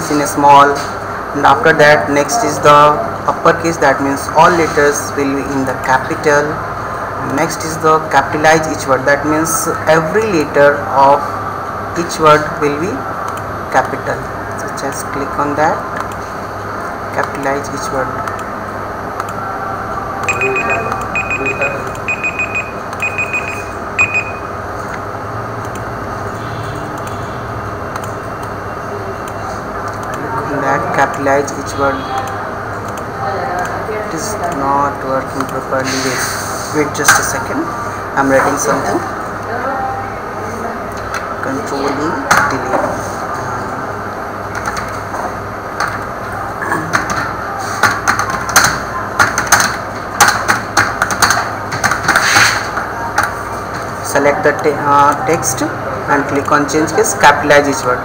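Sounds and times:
room noise: 0.0 - 58.0
steady low hum: 0.0 - 58.0
high-pitched electronic beeps: 20.2 - 24.5.

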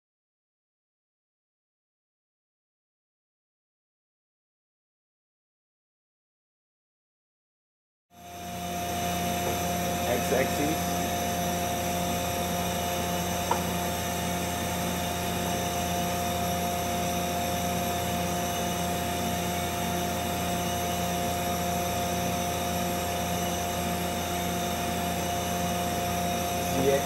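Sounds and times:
lathe humming and whining: 8.2 - 27.0.

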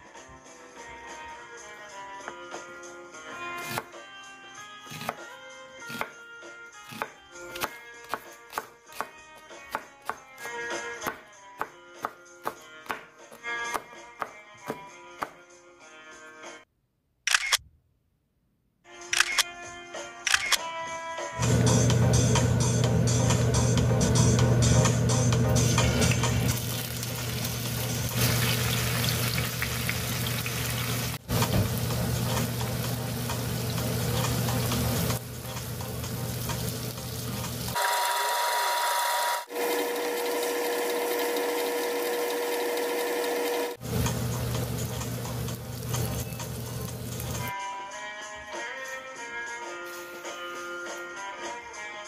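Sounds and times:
music: 0.0 - 16.7, 18.8 - 38.4, 43.8 - 52.0
tofu sizzling in oil: 26.6 - 38.1.

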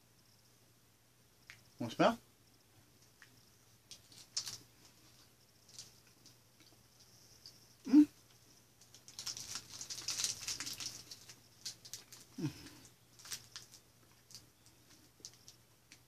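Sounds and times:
person humming: 7.9 - 8.2, 12.4 - 12.9.

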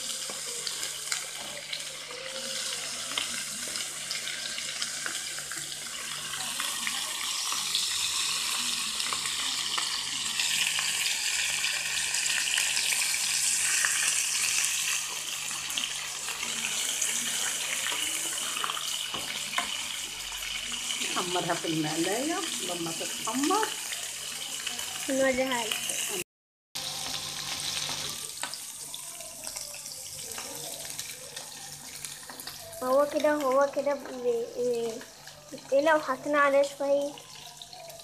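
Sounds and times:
meat sizzling in frying pan: 0.0 - 26.2, 26.8 - 38.0.

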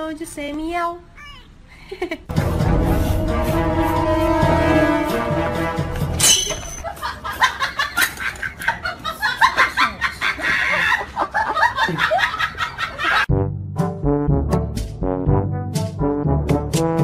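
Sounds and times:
brass-led music: 2.3 - 6.7, 13.3 - 17.0.

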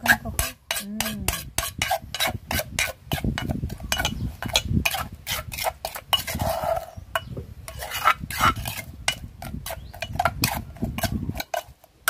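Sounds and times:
metal spoon scraping stone mortar: 0.0 - 12.0.

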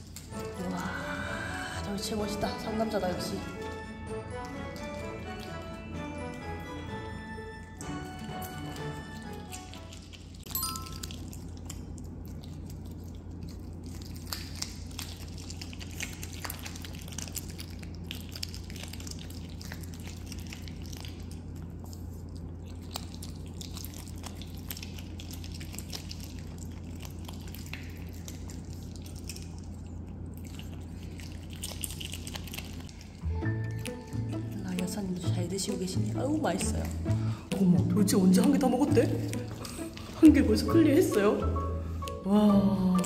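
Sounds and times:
otter chewing crunchily: 0.0 - 42.2
low hum: 0.0 - 43.0.

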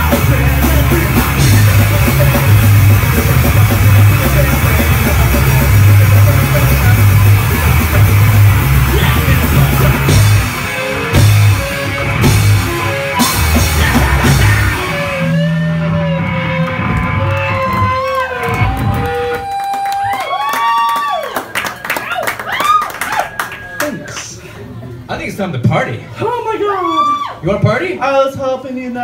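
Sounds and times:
drum hits: 0.0 - 15.0
live rock band playing: 0.0 - 19.4
ringing electric guitar notes: 1.0 - 19.5.

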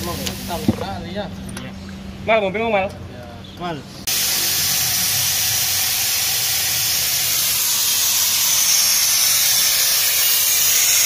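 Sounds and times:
air suction tool hissing: 4.0 - 11.0.

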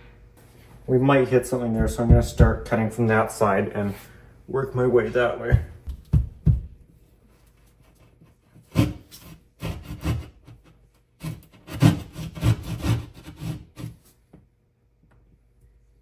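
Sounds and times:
hand saw rasping through drywall: 7.9 - 14.1.

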